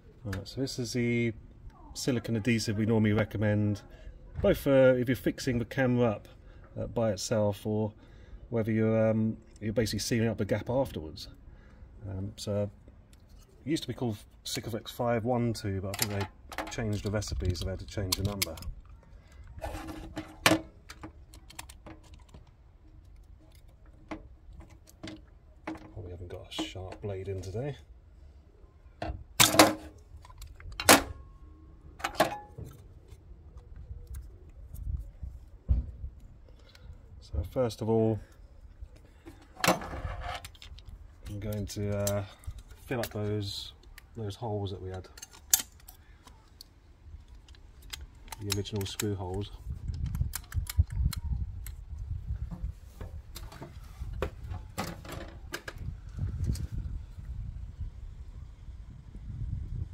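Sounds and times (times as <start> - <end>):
wind rumbling on microphone: 33.6 - 37.4, 49.5 - 59.9
caulking gun clicks: 45.2 - 51.8.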